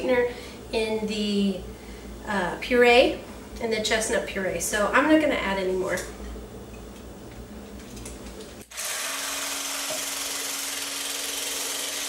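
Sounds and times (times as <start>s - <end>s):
hand blender whirring: 8.7s - 12.0s.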